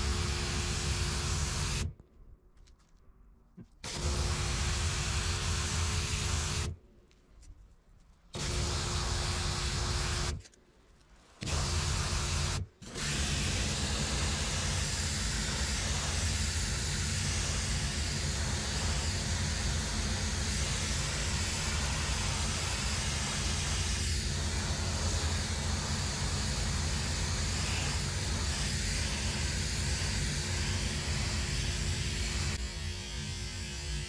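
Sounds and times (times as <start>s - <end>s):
constant low hum: 0.0s - 34.0s
steam cleaner spraying hiss: 3.9s - 6.7s, 11.5s - 32.6s.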